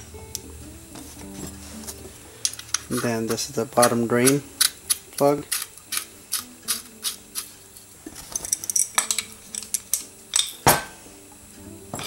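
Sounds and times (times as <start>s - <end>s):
small metal clicks and clinks: 7.8s - 10.6s.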